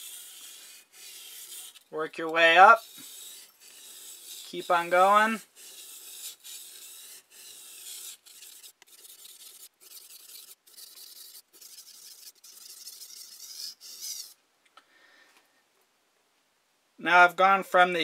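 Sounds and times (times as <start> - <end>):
knife scraping on whetstone: 0.0 - 14.4.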